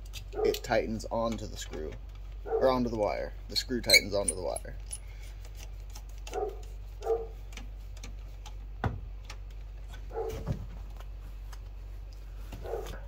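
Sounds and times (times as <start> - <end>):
dog barking: 0.4 - 0.6, 2.4 - 2.8, 6.3 - 7.4, 10.1 - 10.4, 12.6 - 13.0.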